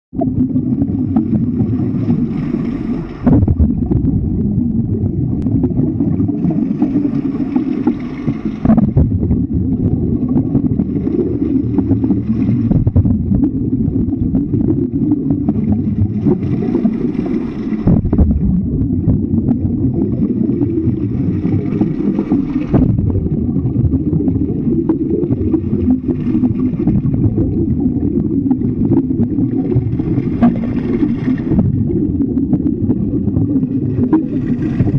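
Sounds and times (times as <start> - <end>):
underwater low rumble: 0.1 - 34.9
hissing water surge: 1.1 - 4.3, 19.7 - 33.1.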